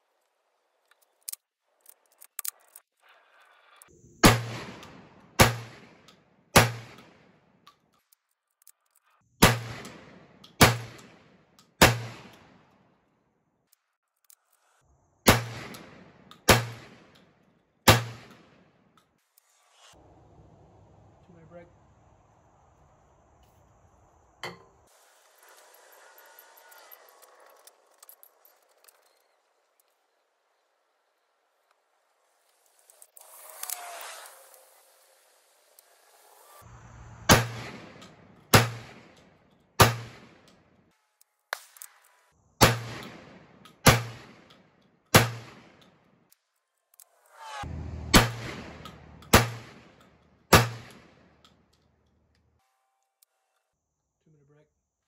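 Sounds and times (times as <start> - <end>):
small metallic clicks: 0.1 - 3.9, 6.9 - 9.2, 9.8 - 12.8, 13.6 - 14.8, 26.2 - 30.0, 48.8 - 53.7
shotgun handling clicks: 0.8 - 2.8
shotgun shots with echo: 4.2 - 7.4, 9.4 - 12.6, 15.3 - 17.1, 17.9 - 18.6, 37.3 - 39.2, 39.8 - 40.5, 42.6 - 44.5, 45.1 - 45.8, 48.1 - 51.3.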